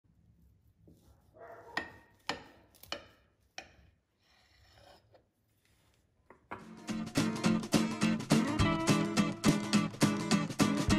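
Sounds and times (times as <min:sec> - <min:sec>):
knife rasping through cake: 0:01.8 - 0:06.0.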